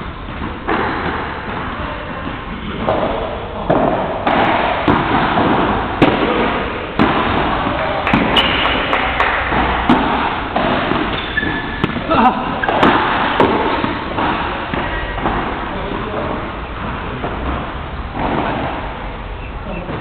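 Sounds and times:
background noise: 0.0s - 20.0s
padel ball knocked by paddles: 0.4s - 19.1s
ball bouncing off court and glass: 2.8s - 15.7s.

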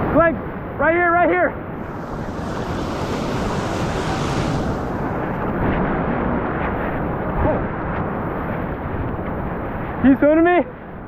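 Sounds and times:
whitewater rushing: 1.8s - 5.6s.

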